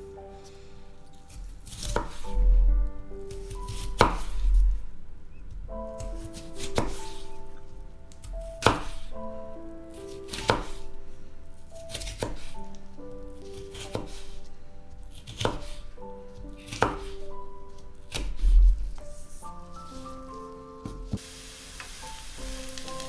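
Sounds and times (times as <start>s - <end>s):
knife slicing raw potato: 1.1s - 2.4s, 3.3s - 4.4s, 6.0s - 7.3s, 8.3s - 9.1s, 10.1s - 10.8s, 11.9s - 12.8s, 13.4s - 14.4s, 15.1s - 17.3s, 18.1s - 21.2s.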